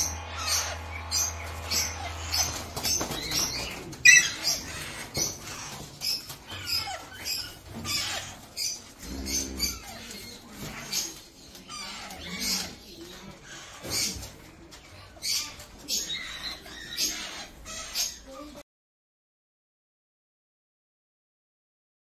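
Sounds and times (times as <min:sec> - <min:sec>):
parakeets giving short high calls: 0:00.0 - 0:03.5
wings flapping: 0:00.0 - 0:07.0.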